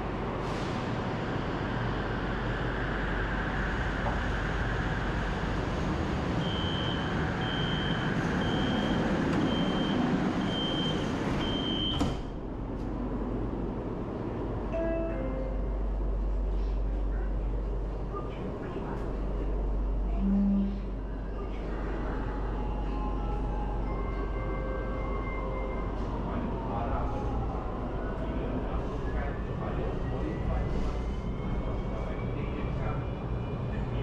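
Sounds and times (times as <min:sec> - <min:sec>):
train rumble: 0:00.0 - 0:34.0
train doors shutting: 0:06.4 - 0:13.0.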